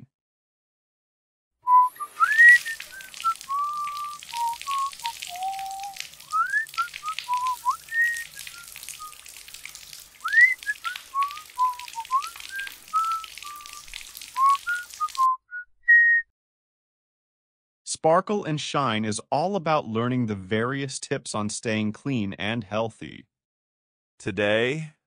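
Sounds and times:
person whistling a tune: 0:01.7 - 0:09.2, 0:10.2 - 0:16.3
running shower hiss: 0:01.9 - 0:15.2.

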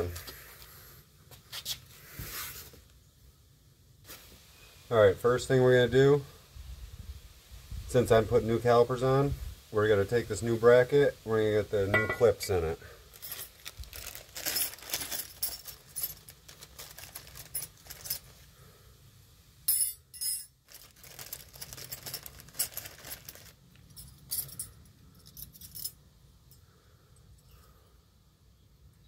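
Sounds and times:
small metal clicks and clinks: 0:21.2 - 0:26.6.

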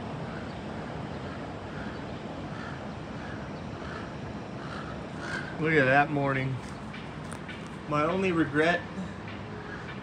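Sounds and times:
distant traffic: 0:00.0 - 0:10.0.

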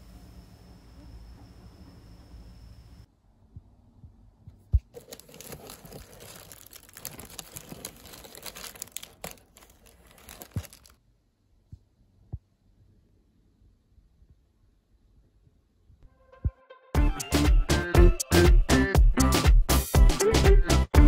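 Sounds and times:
paper packing wrap crinkling: 0:04.8 - 0:11.0.

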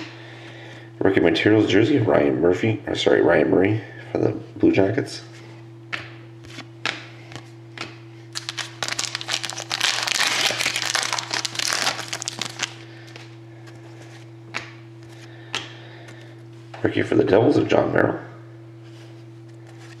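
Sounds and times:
steady low hum: 0:00.0 - 0:20.0
foil wrapper tearing and crinkling: 0:08.3 - 0:12.8.

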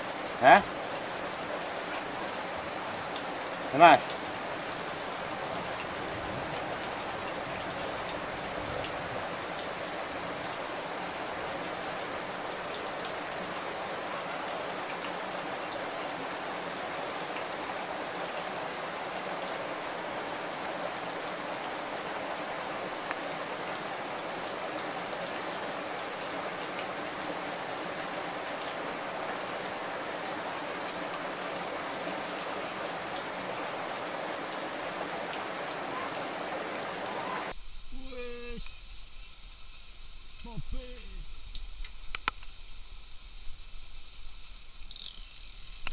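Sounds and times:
running water rushing: 0:00.0 - 0:45.9
faint click: 0:41.5 - 0:42.5.

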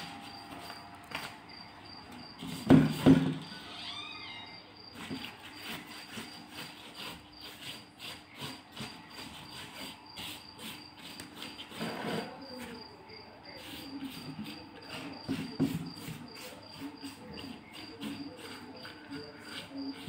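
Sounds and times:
pastry brush strokes on sheets: 0:05.0 - 0:20.0.

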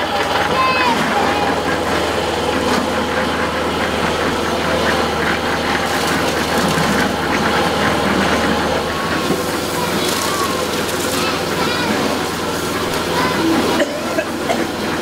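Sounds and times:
small engine humming: 0:00.0 - 0:15.0.

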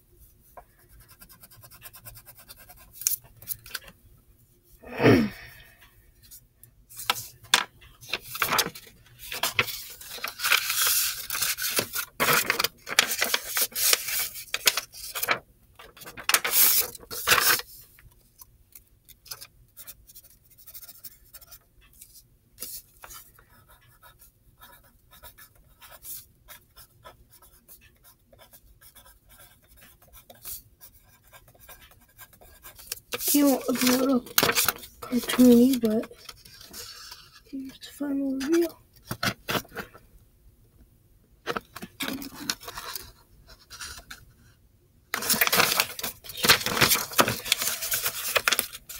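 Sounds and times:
pencil scratching on paper: 0:00.8 - 0:03.0, 0:23.0 - 0:34.2.

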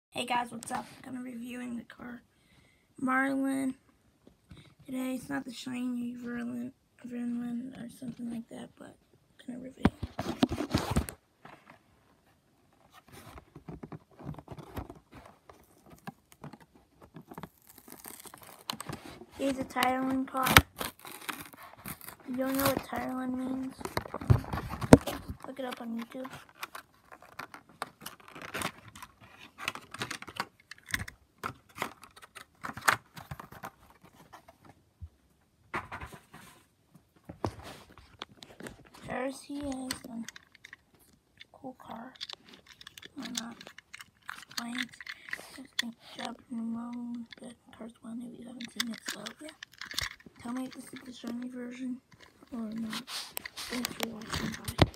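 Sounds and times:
light clicks and rustles: 0:37.0 - 0:47.5, 0:48.4 - 0:54.9.

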